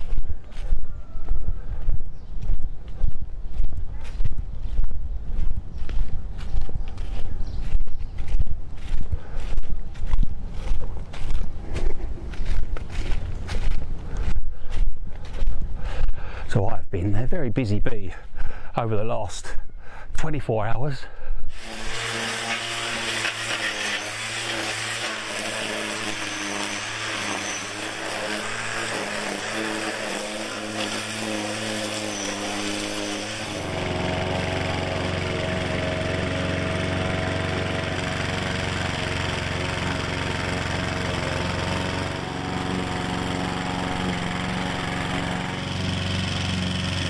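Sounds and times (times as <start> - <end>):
small engine tool running: 0.0 - 2.6, 3.5 - 16.1, 21.5 - 47.0
lawn mower engine humming: 3.4 - 16.4, 21.5 - 47.0.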